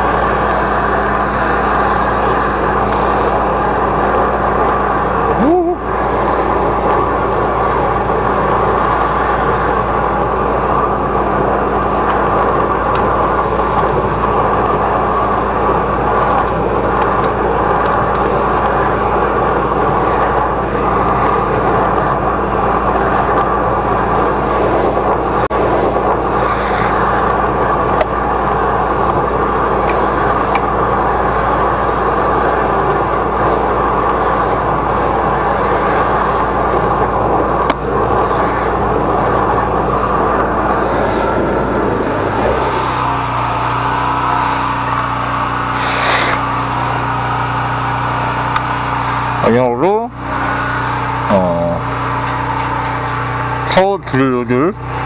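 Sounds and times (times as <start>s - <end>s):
drain jetter engine running: 0.0s - 55.0s.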